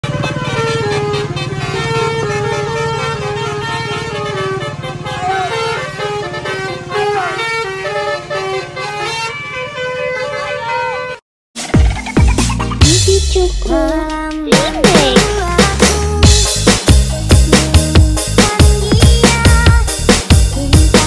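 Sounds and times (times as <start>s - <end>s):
bus engine hum: 0.0s - 11.2s
multi-trumpet horn melody: 0.0s - 11.2s.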